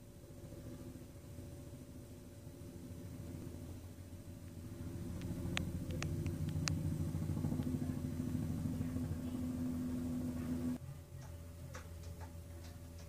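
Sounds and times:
motor running steadily: 0.0s - 13.0s
steady hum: 0.0s - 13.0s
sharp clicks: 5.2s - 6.8s.

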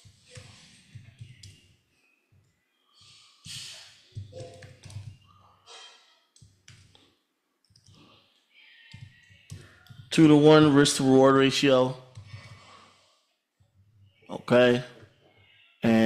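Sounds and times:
computer keyboard typing: 0.1s - 1.7s, 4.1s - 5.5s, 6.4s - 8.2s, 8.8s - 10.3s, 12.1s - 12.8s.

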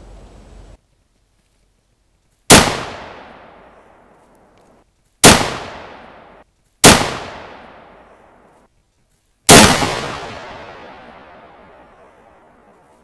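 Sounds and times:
rifle shots with rolling echo: 2.5s - 4.1s, 5.2s - 8.5s, 9.5s - 12.9s.

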